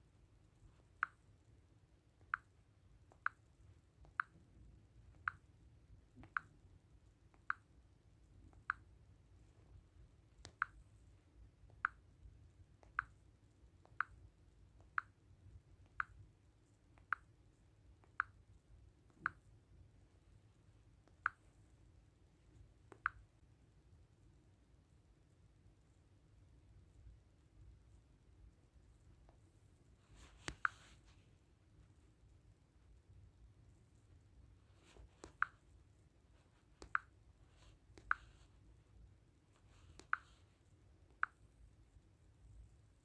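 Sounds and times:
smartphone touch taps: 34.8s - 35.6s, 36.8s - 38.5s, 39.6s - 40.4s.

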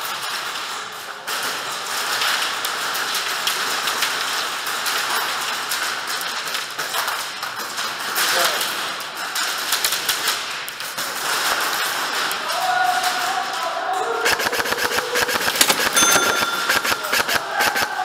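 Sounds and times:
airsoft guns firing: 14.2s - 18.0s.

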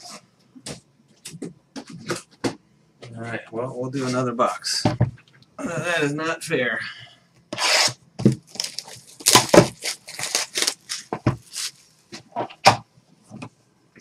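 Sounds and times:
wrapping crinkling and tearing: 7.6s - 11.9s.

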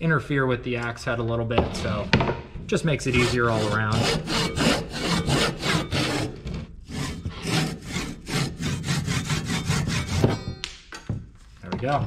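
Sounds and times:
pull saw cutting wood: 3.1s - 10.6s.

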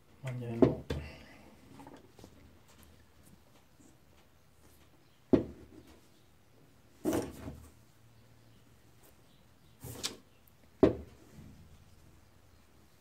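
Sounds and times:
knock on bench: 5.3s - 5.6s.

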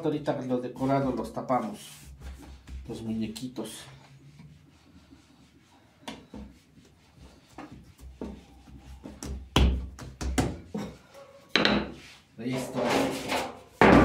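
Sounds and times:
dough thumps on wooden table: 9.0s - 10.9s.

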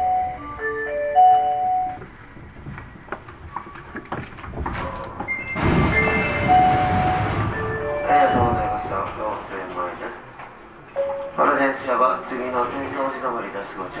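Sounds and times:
subway train running noise: 0.0s - 3.6s, 4.6s - 14.0s
rail clicks: 0.1s - 11.6s
electronic chime: 5.0s - 8.9s.

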